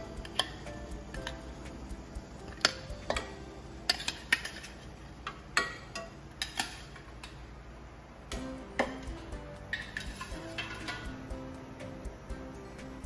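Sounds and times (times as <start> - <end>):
utensils clinking on pot and dishes: 0.0 - 1.4, 2.5 - 7.4, 8.8 - 11.3.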